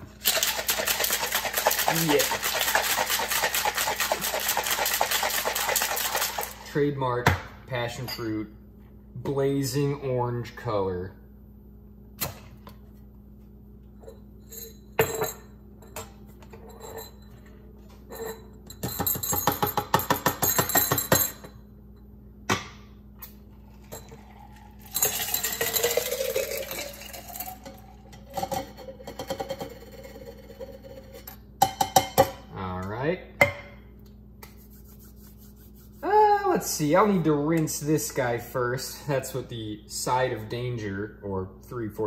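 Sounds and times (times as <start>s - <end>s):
ice rattling: 0.2s - 6.6s
drink pouring over ice: 0.2s - 6.7s, 23.8s - 27.8s
shaker tin and glassware clinking: 0.2s - 6.7s, 23.9s - 27.6s.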